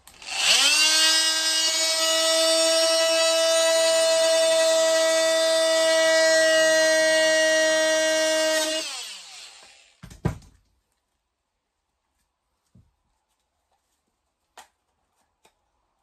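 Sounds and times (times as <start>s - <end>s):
multi-tool motor whine spinning down: 0.0s - 10.0s.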